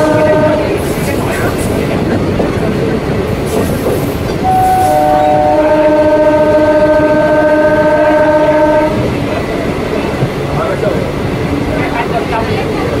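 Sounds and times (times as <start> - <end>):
train horn blast: 0.0 - 0.8, 4.4 - 9.1
moving train rumble and clatter: 0.0 - 13.0.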